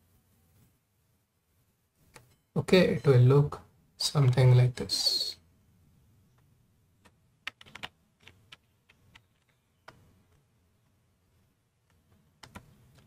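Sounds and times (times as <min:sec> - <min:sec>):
computer mouse clicks: 0:11.8 - 0:13.0.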